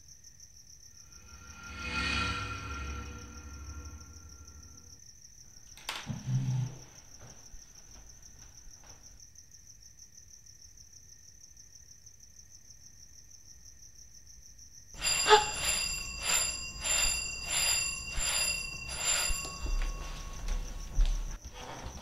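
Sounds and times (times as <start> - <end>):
crickets chirping: 0.0 - 22.0
telephone bell ringing: 15.0 - 21.4.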